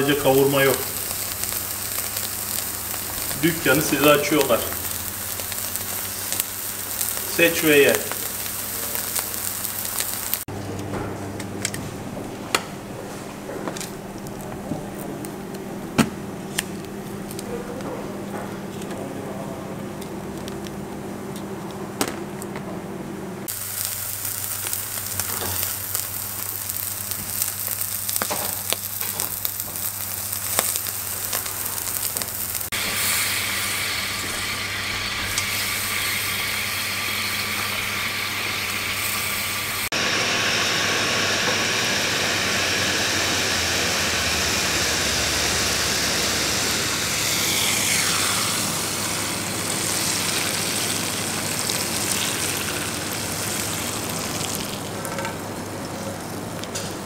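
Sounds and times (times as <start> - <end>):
steak sizzling on grill: 0.0 - 10.5, 23.5 - 55.6.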